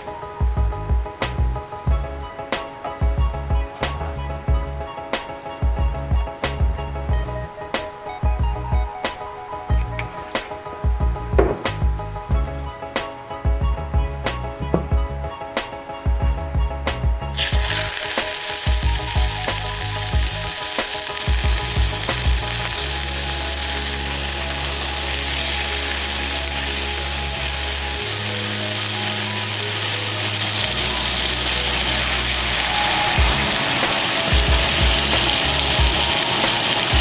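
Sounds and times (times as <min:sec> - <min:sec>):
steak sizzling in a pan: 0:17.4 - 0:37.0.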